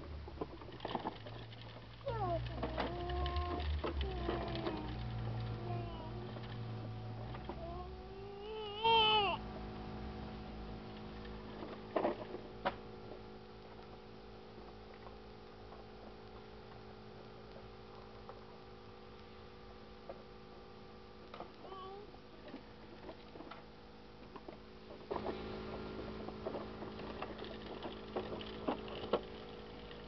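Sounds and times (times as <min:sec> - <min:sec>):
steady low hum: 0:00.0 - 0:30.0
young child squealing: 0:08.2 - 0:09.4.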